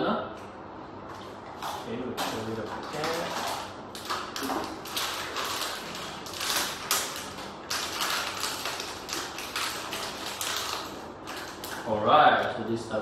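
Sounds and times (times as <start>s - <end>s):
packaging rustling and crinkling: 2.2s - 11.9s.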